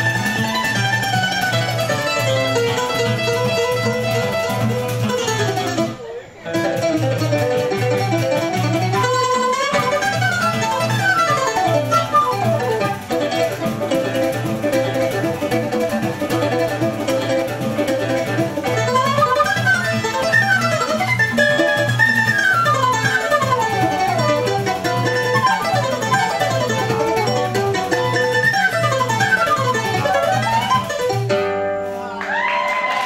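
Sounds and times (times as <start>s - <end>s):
plucked mandolin and guitar: 0.0s - 32.2s
pandeiro steady beat: 0.0s - 32.4s
flute playing fast runs: 6.6s - 31.3s.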